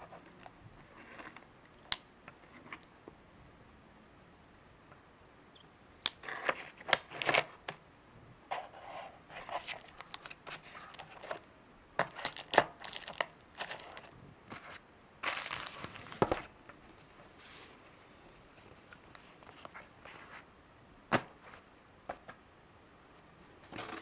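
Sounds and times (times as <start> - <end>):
plastic wrapping crinkling: 12.0 - 14.1, 15.2 - 16.5.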